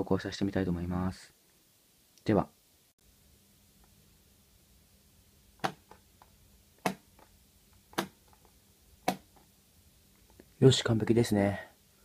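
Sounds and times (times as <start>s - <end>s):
sharp plastic clicks: 7.9s - 9.4s.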